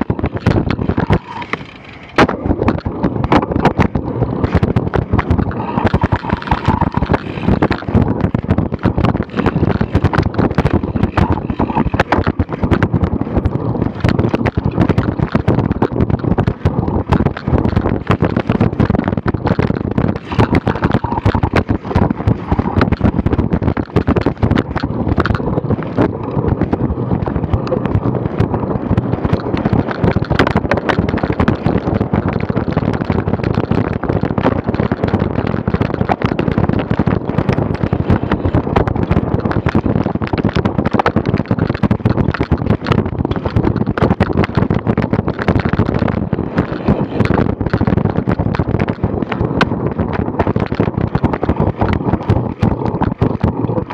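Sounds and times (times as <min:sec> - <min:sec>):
bike rattling over bumpy grass: 0:00.0 - 0:53.9
wind buffeting microphone: 0:00.0 - 0:53.9.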